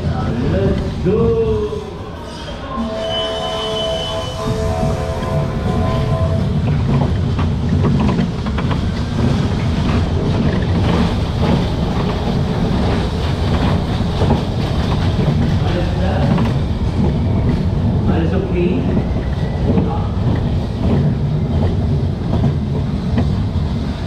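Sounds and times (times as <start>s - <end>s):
roller coaster rumble: 0.0s - 24.0s
wheels clicking and clattering: 4.9s - 24.0s.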